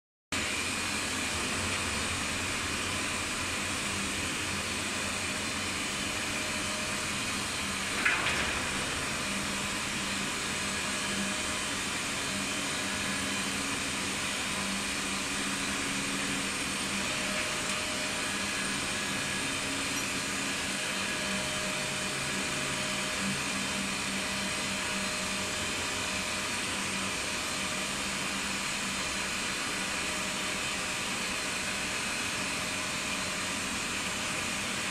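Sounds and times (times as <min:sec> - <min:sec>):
lift hoist whirring: 0:01.2 - 0:24.1.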